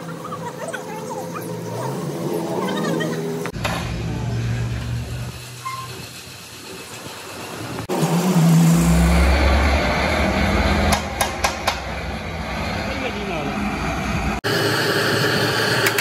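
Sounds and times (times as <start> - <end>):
engine rumble: 0.0 - 14.4
hammer tapping on metal: 10.9 - 11.9.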